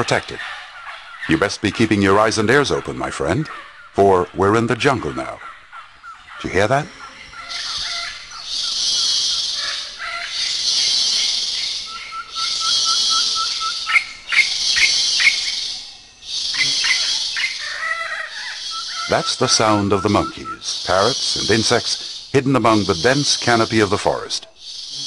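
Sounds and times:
birds pipping: 0.0s - 25.0s
birds squawking: 0.0s - 25.0s
pulsing insect buzz: 7.6s - 23.7s, 24.6s - 25.0s.

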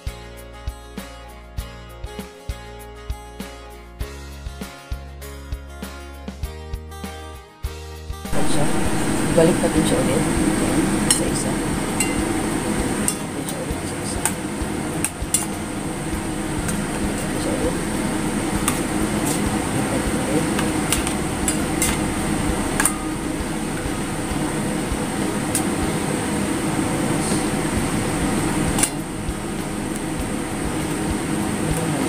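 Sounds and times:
steady background noise: 8.3s - 32.0s
metal tongs clinking on steel bowl: 10.9s - 15.6s, 20.4s - 22.1s, 22.7s - 23.2s.

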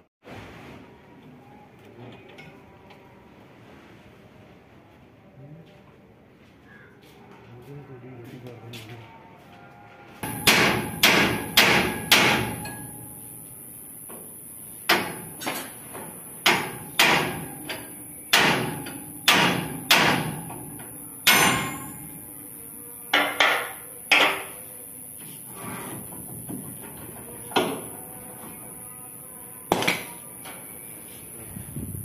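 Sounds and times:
hammer striking steel: 10.2s - 13.5s, 14.8s - 24.6s.

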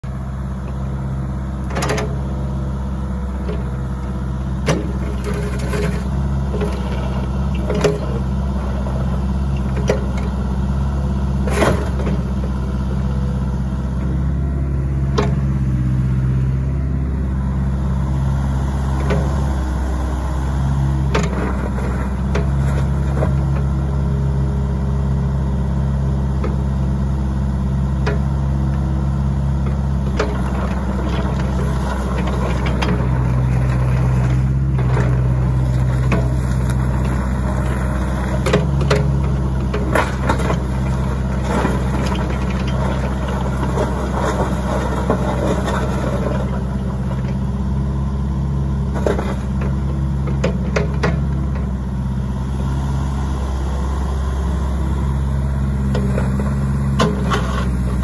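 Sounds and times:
excavator diesel engine running: 0.0s - 58.0s
excavator arm clunks: 1.6s - 2.3s, 4.6s - 10.4s, 11.4s - 12.4s, 15.0s - 15.7s, 21.0s - 23.8s, 29.6s - 47.5s, 48.8s - 51.8s, 55.8s - 58.0s.

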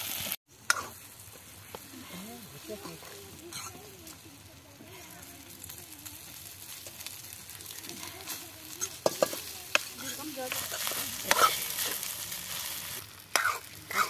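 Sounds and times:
light sizzle from pan: 0.0s - 14.0s
ladle scraping metal pan: 8.8s - 14.0s.

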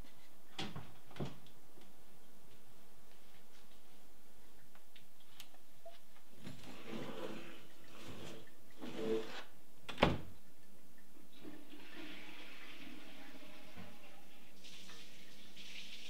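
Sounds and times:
folding door sliding: 6.6s - 9.5s.

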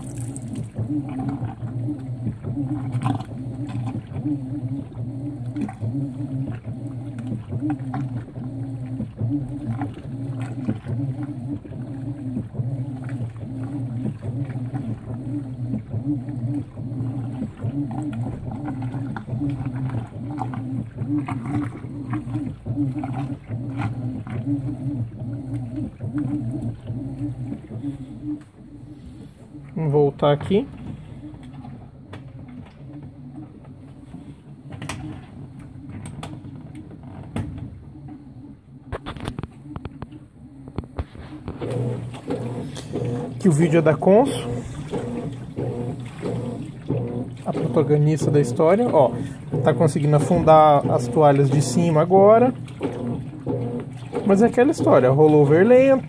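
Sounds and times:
water splashing: 0.0s - 4.1s, 40.8s - 56.0s
washing machine motor hum: 0.0s - 56.0s.

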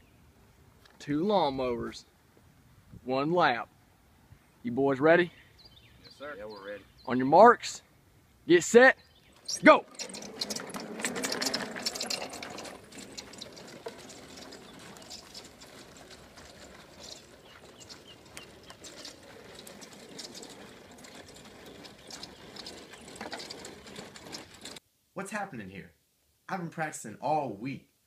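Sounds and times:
lawnmowers rattling over dry grass: 9.3s - 24.8s.

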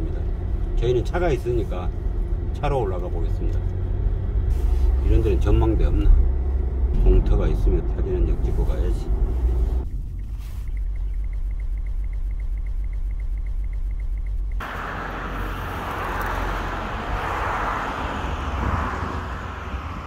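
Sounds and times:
car cabin road noise: 0.0s - 20.0s
fast even ticking: 10.7s - 14.6s
wind on microphone: 14.8s - 20.0s.

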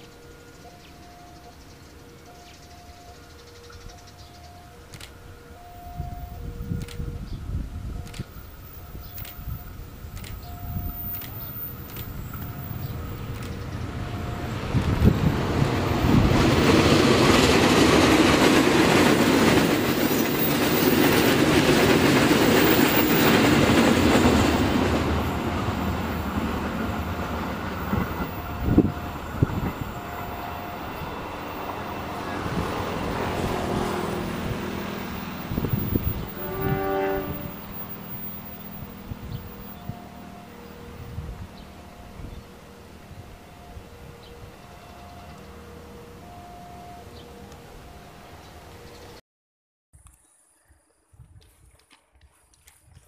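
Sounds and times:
train passing: 0.0s - 49.2s
train wheels clacking: 8.0s - 39.8s.

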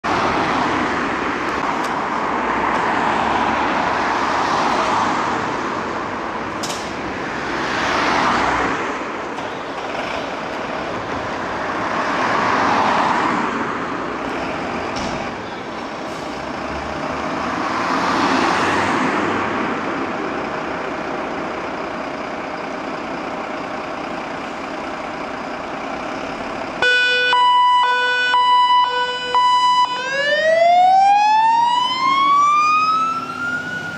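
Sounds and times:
road traffic passing: 0.0s - 33.9s
fire engine siren: 26.8s - 33.9s.

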